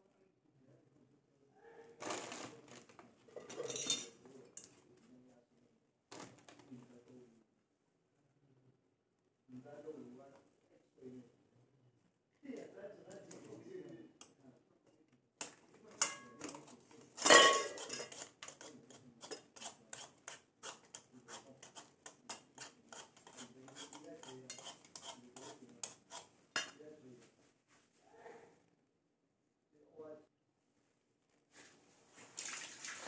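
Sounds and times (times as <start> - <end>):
clinks against metal bowl: 3.4 - 4.7, 15.9 - 19.4
metal utensil scraping squash: 16.0 - 26.8.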